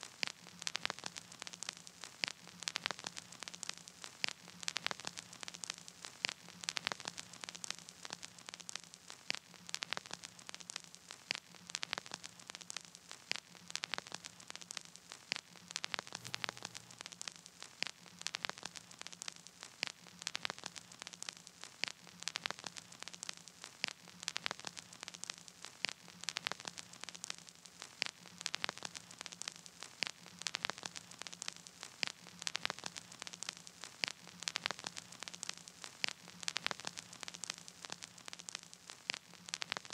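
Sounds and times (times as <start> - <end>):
crackling static clicks and pops: 0.0 - 39.9
faint hiss: 0.0 - 39.9
steady low hum: 16.2 - 17.3.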